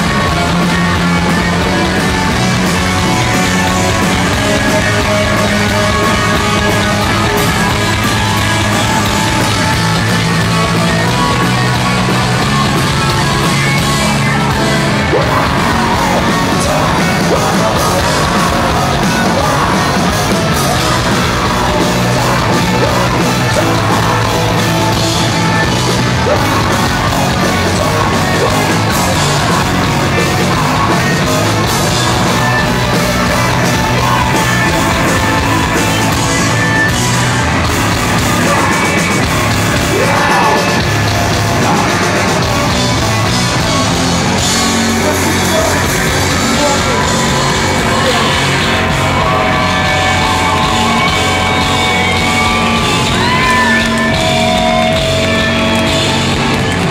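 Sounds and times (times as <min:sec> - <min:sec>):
bass guitar: 0:00.0 - 0:56.9
distorted electric guitars: 0:00.0 - 0:56.9
rock drums: 0:00.0 - 0:56.9
person yelling vocals: 0:39.8 - 0:40.9.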